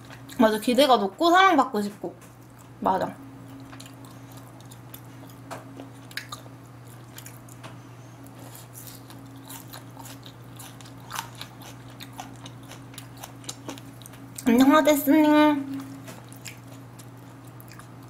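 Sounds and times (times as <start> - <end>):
low electrical hum: 0.0 - 18.0
person chewing food: 3.5 - 14.5, 15.7 - 18.0.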